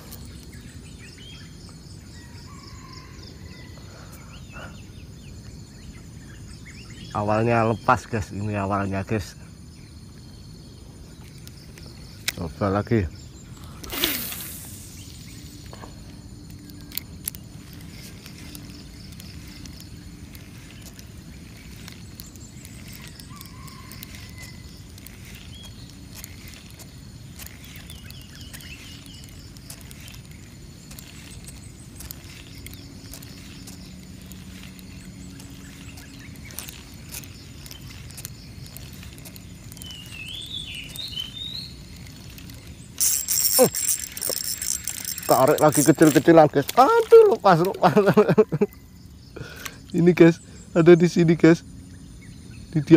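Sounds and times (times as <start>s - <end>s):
faint bird chirps: 0.0s - 52.9s
steady low hiss: 4.8s - 52.9s
fishing line cast swish: 13.8s - 14.9s.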